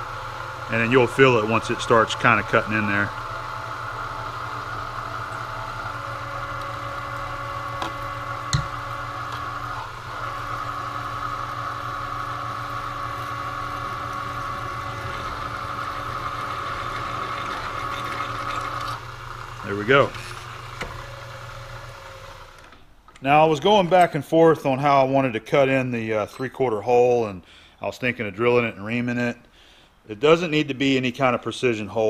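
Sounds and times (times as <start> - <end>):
drill press humming: 0.0 - 24.1.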